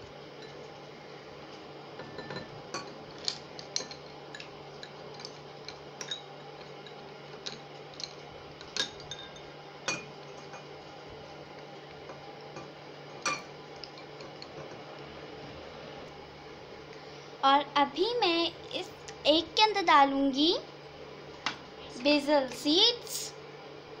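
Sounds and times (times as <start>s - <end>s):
ice and spoon clinking on glass: 3.8s - 8.2s.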